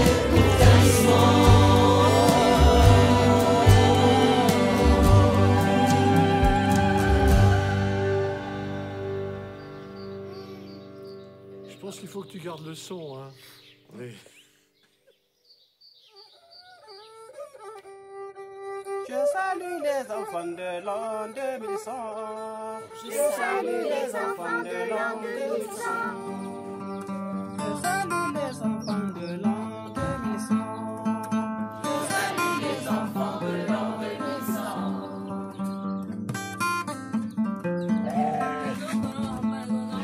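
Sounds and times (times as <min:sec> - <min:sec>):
man singing: 0:00.0 - 0:08.3, 0:19.0 - 0:23.6
strummed acoustic guitar: 0:00.0 - 0:11.7, 0:24.4 - 0:40.0
one-string fiddle: 0:17.4 - 0:23.8.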